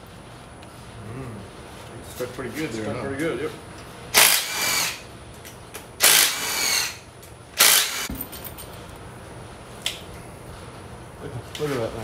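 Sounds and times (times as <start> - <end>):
cordless driver spinning bolts: 6.0 - 7.0, 7.6 - 8.1.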